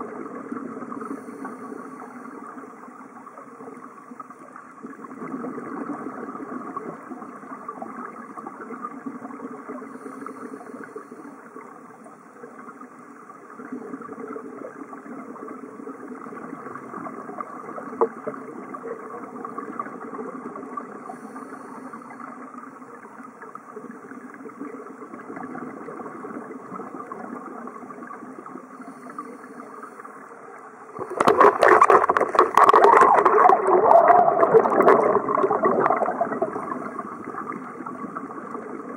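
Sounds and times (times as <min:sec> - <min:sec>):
underwater boat engine drone: 0:00.0 - 0:04.4, 0:21.0 - 0:24.1, 0:28.3 - 0:31.3
churning splashing water with bubbles: 0:31.0 - 0:38.9.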